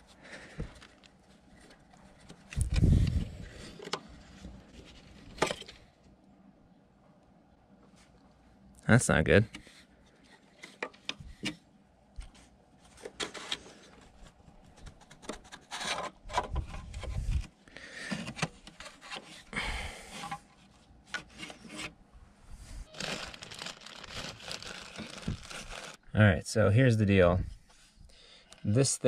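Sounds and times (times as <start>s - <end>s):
scraping and rubbing on plastic: 12.2s - 17.6s, 22.8s - 26.0s
cloth rag rustling: 22.8s - 26.0s.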